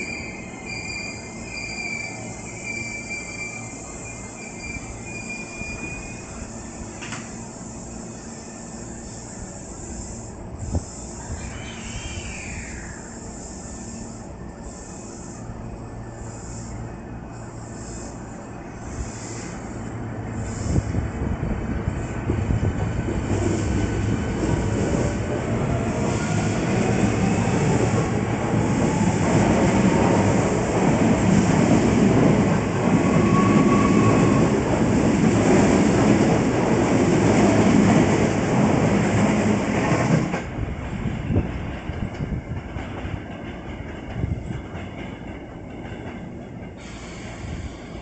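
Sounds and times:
train wheels clattering on rails: 22.3 - 48.0.

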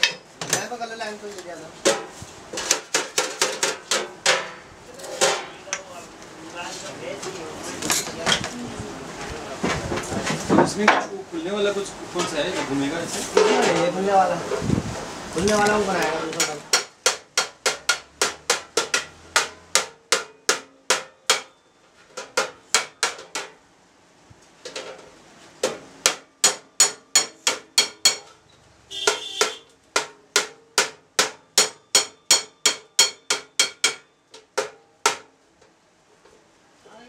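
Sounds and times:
hammer on sheet metal: 1.8 - 5.9, 16.3 - 21.6, 22.2 - 23.6, 25.6 - 35.3.

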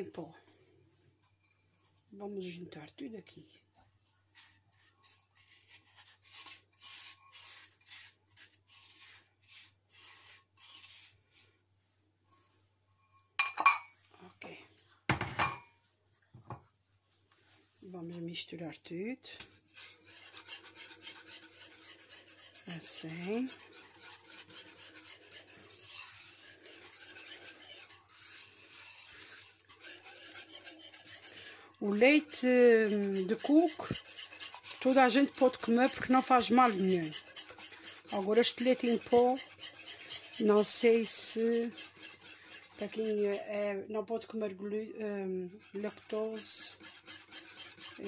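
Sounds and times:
spatula scraping a bowl: 1.3 - 2.0, 4.3 - 11.5, 12.4 - 13.8, 19.2 - 44.8, 45.5 - 48.0.

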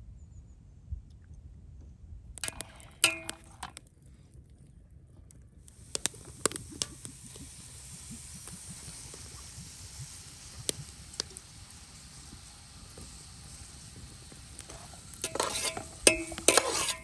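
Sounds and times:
oil sizzling with pops: 2.4 - 3.8, 5.6 - 17.0.

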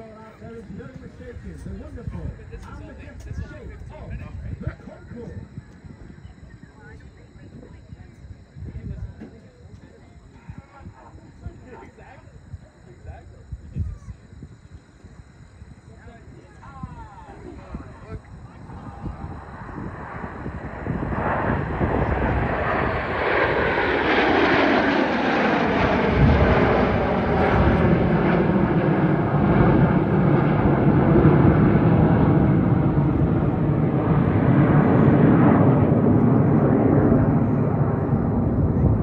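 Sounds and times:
jet engines rumbling: 0.0 - 39.0
jet whine gliding down in pitch: 0.0 - 39.0.

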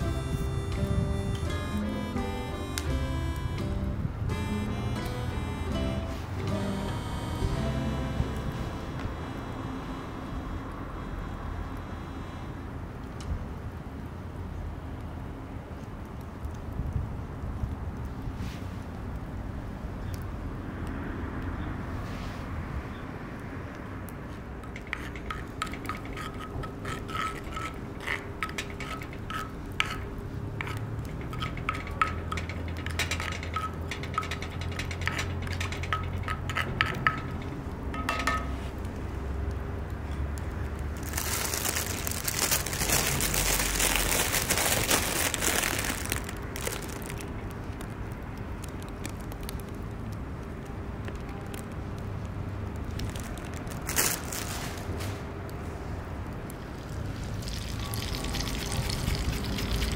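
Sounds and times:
metal cookware clinking: 31.1 - 38.6.

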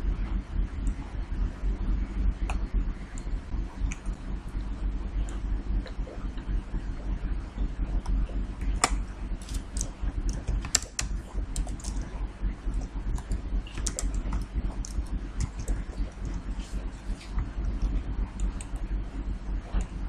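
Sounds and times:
low steady hum: 0.0 - 20.0
keyboard keystrokes clicking: 8.8 - 12.0, 13.2 - 16.4.

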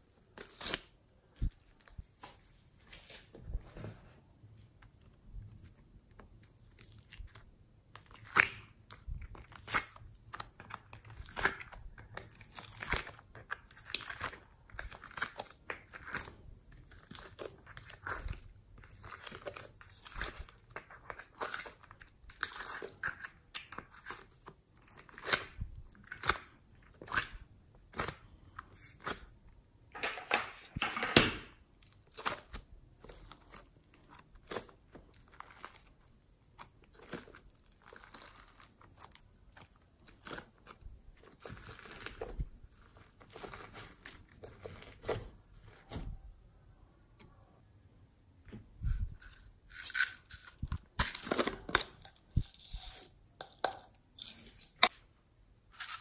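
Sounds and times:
wet slime squishing: 4.9 - 29.6, 31.6 - 47.8.

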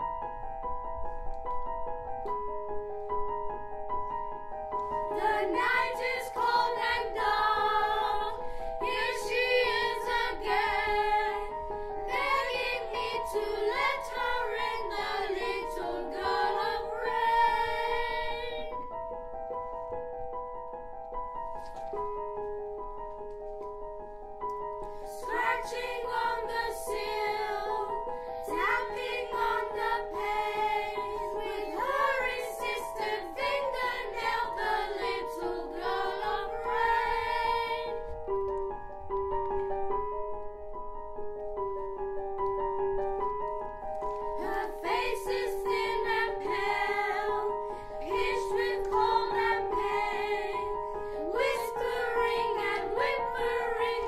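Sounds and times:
piano accompaniment: 0.0 - 54.0
children's choir singing: 5.1 - 18.8, 25.1 - 38.1, 44.4 - 54.0.

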